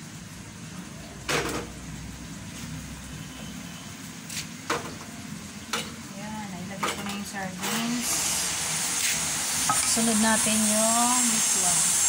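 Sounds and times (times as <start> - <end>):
utensils and cookware clacking: 6.7 - 8.2.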